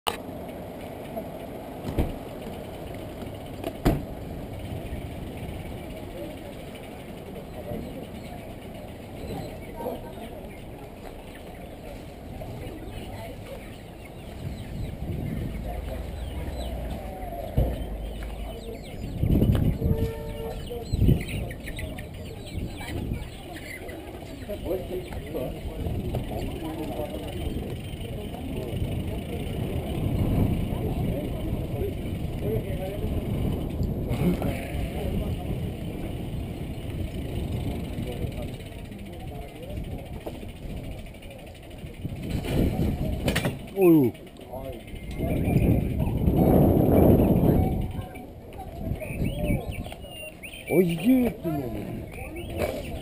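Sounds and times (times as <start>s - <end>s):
street bustle: 0.0s - 53.0s
low engine rumble: 0.1s - 53.0s
high bird chirps: 48.9s - 51.3s, 52.0s - 53.0s.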